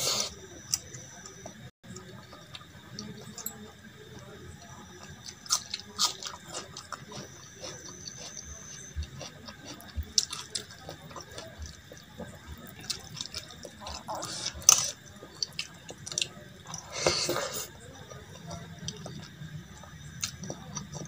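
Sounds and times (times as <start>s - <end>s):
smacking and chewing: 5.0s - 21.0s.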